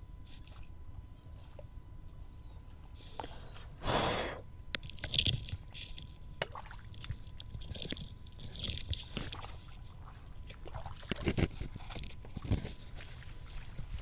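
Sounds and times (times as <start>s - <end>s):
breathy exhale: 3.1s - 4.4s
faint clicks and rustles: 4.7s - 14.0s.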